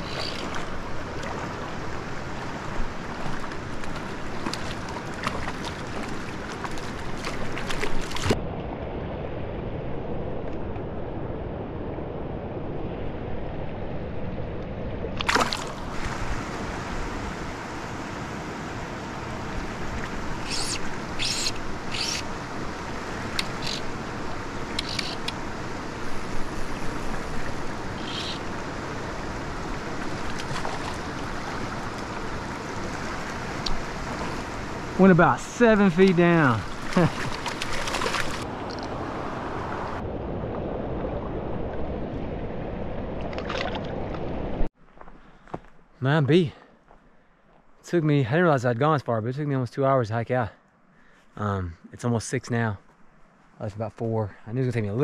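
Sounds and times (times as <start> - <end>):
stream water rushing: 0.0 - 8.5, 14.5 - 44.7
short sharp splashes: 15.2 - 16.4, 30.2 - 31.8, 36.6 - 38.5.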